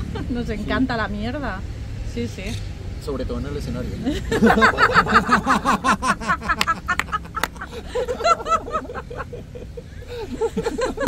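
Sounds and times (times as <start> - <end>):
people laughing: 4.0 - 11.0.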